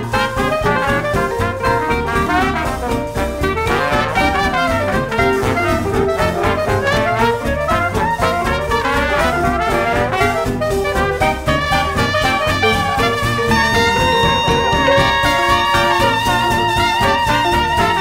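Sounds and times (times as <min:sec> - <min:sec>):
jazz music with brass horns: 0:00.0 - 0:18.0.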